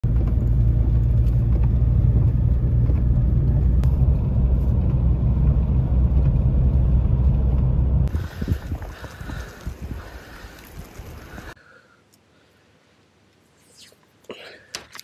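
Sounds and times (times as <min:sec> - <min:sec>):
car engine and tyres rumbling: 0:00.0 - 0:11.6.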